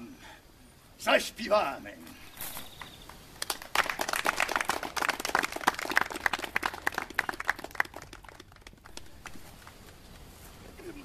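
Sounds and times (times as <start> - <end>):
audience clapping: 2.8 - 10.0.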